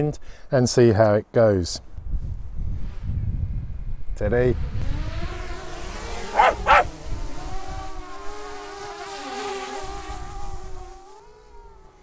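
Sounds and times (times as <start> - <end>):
drone propellers whirring: 6.1 - 7.7
dog barking: 6.3 - 6.9.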